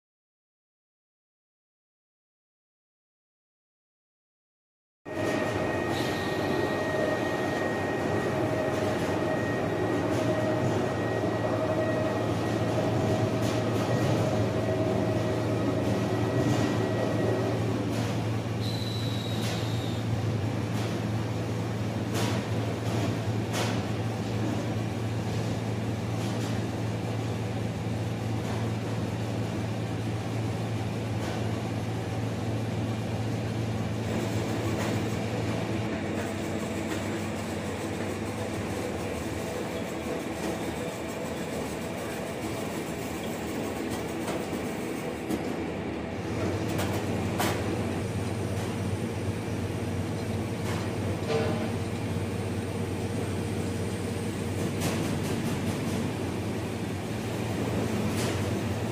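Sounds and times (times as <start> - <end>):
roller mill turning and scraping: 5.1 - 19.7, 46.2 - 58.9.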